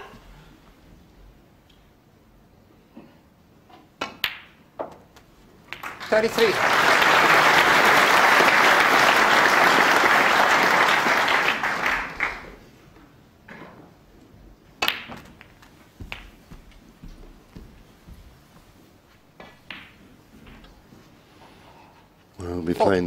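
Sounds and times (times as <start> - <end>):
snooker balls clicking: 3.7 - 6.3, 14.8 - 17.8, 19.4 - 20.8
audience applause: 5.8 - 12.6.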